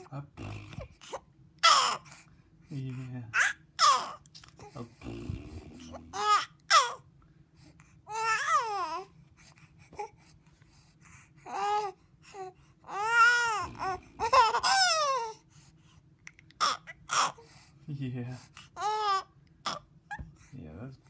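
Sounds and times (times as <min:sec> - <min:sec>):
baby cooing: 0:00.0 - 0:02.1, 0:03.4 - 0:07.0, 0:08.1 - 0:09.1, 0:11.4 - 0:15.4, 0:16.5 - 0:17.4, 0:18.8 - 0:20.3.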